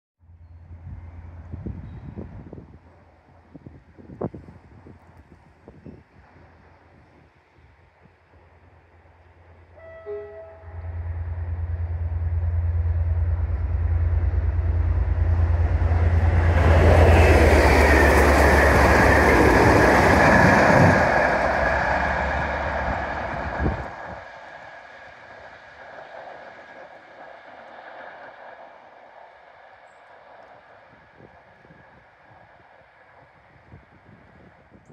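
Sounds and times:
diesel locomotive engine drone: 0.2 - 34.9
wheel rumble and rail clatter: 10.5 - 34.9.

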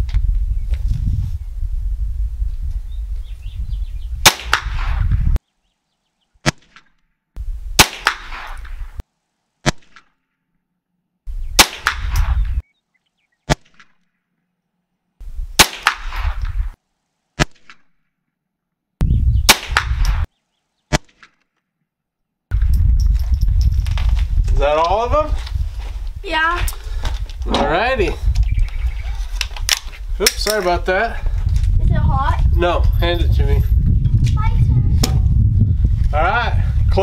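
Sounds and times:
rifle shots: 4.2 - 5.0, 7.8 - 8.7, 11.6 - 12.4, 15.6 - 16.5, 19.5 - 20.3.

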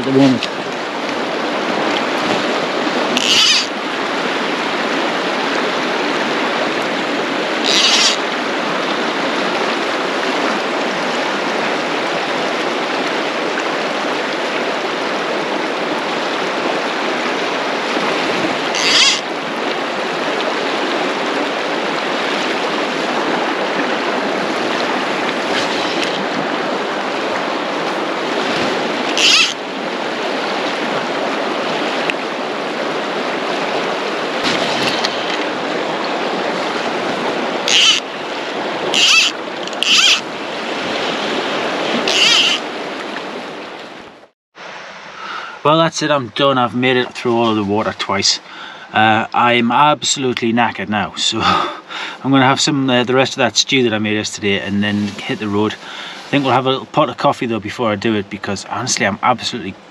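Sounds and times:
river water rushing over rocks: 0.0 - 45.8
short high-pitched sounds: 39.0 - 40.2.

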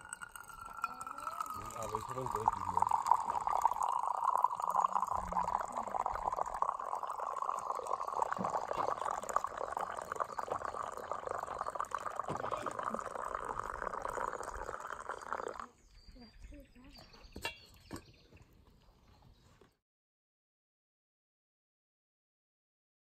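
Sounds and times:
coffee pouring into a mug: 0.0 - 15.7.

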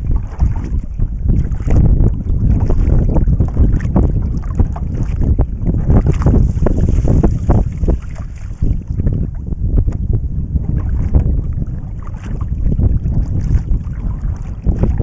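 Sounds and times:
paddle splashing water: 0.0 - 10.0, 10.6 - 15.0
wind buffeting microphone: 0.0 - 15.0.

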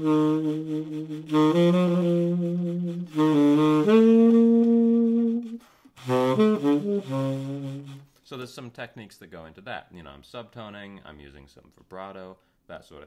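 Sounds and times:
tenor saxophone playing swing: 0.0 - 8.2.

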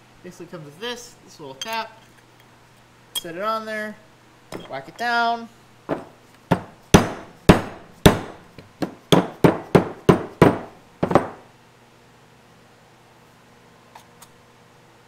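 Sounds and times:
mallet striking metal: 6.5 - 8.4.

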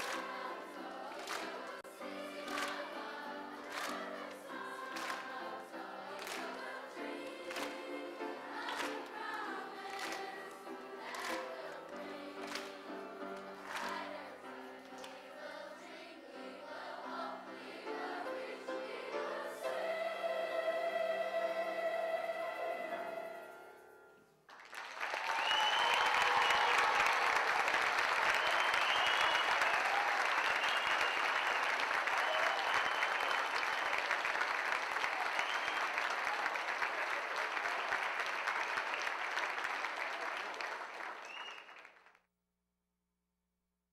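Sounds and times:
audience applauding: 0.0 - 14.3, 24.5 - 42.2
children's choir singing: 0.0 - 24.0
scattered cheers: 25.0 - 39.0.

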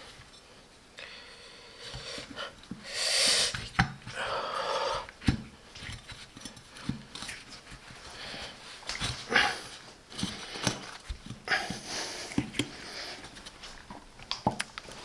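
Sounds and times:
person breathing hard: 1.0 - 5.2, 8.0 - 13.4.

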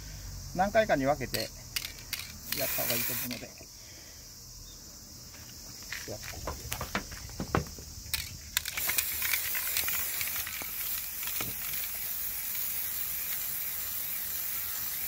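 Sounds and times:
aerosol spray can hissing: 1.8 - 3.6, 8.2 - 15.0.

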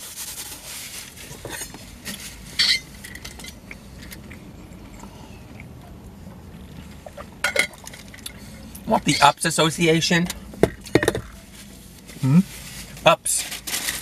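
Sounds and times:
paper napkin rustling: 0.0 - 2.6.

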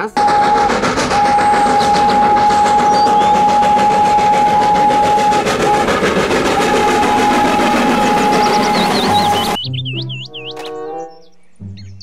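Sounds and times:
train running: 0.0 - 9.6
train whistle: 0.0 - 9.6.

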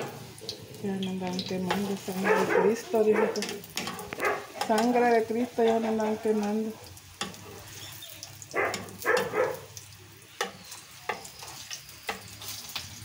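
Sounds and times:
food sizzling in oil: 0.0 - 13.0
metal spoon scraping pan: 1.6 - 6.4.

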